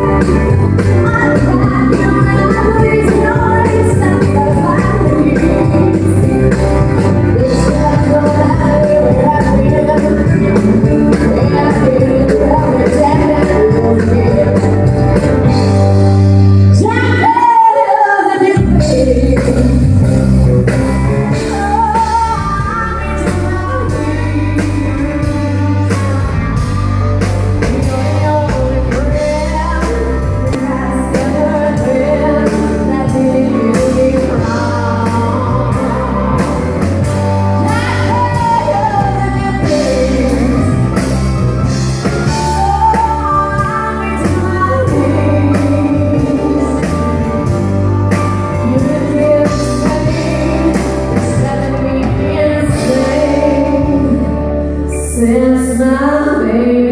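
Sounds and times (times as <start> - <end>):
woman singing into a microphone: 0.0 - 15.8, 16.6 - 20.1, 21.3 - 56.9
drum kit steady beat: 0.0 - 17.1
electric guitar: 0.0 - 56.9
keyboard: 0.0 - 56.9.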